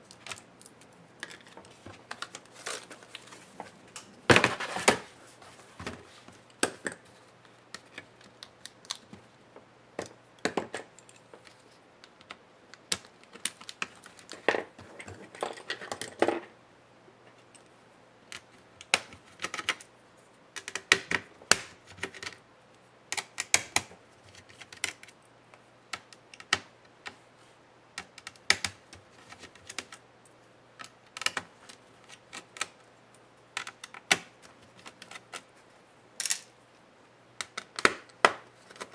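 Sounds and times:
hands handling laptop parts: 0:00.0 - 0:16.5, 0:18.3 - 0:19.9, 0:20.6 - 0:22.4, 0:30.8 - 0:32.9, 0:33.5 - 0:36.5, 0:37.4 - 0:38.9.

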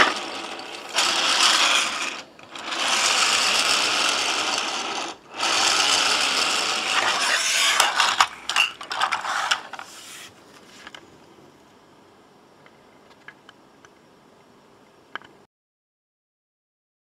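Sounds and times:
toy spring motor whirring: 0:00.0 - 0:09.9
uneven clicks and short whirs: 0:00.0 - 0:09.9.

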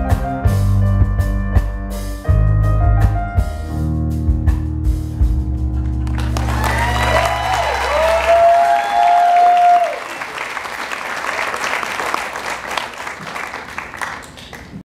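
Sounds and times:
audience applauding: 0:05.8 - 0:14.8.

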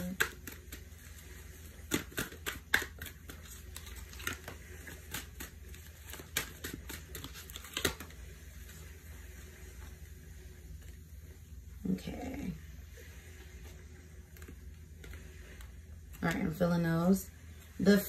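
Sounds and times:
cards tapping and flicking on cloth: 0:00.0 - 0:08.7.

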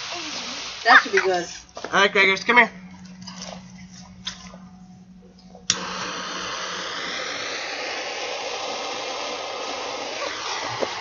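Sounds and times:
firework fuse hissing: 0:00.0 - 0:01.6, 0:05.7 - 0:11.0.

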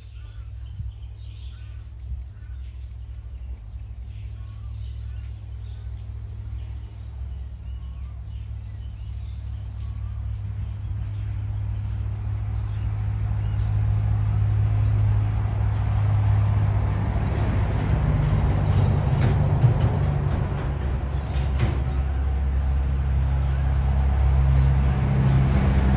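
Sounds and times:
faint bird chirps: 0:00.0 - 0:13.7
vehicle engine approaching: 0:00.0 - 0:25.9.

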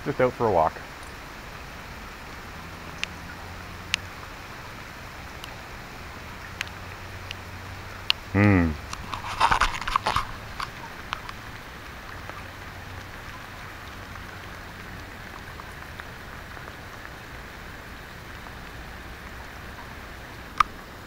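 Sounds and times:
steady rain falling: 0:00.0 - 0:21.0
small ticks: 0:02.2 - 0:04.1, 0:06.4 - 0:08.2, 0:08.9 - 0:19.9.

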